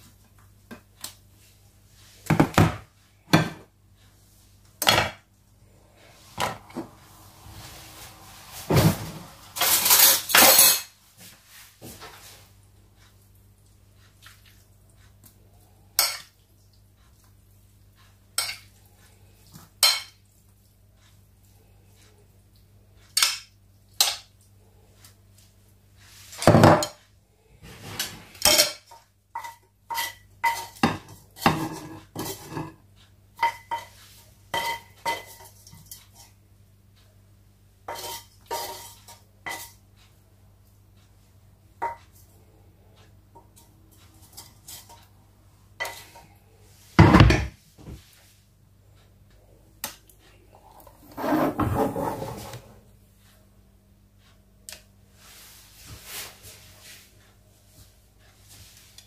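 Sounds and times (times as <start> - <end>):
low steady hum: 0.0 - 59.0
dishes and cutlery clinking: 8.7 - 11.0, 16.0 - 16.4, 18.3 - 18.7, 19.8 - 20.2, 27.8 - 32.8, 33.4 - 36.4, 37.9 - 39.8, 41.8 - 42.2, 43.4 - 45.1, 45.8 - 46.4.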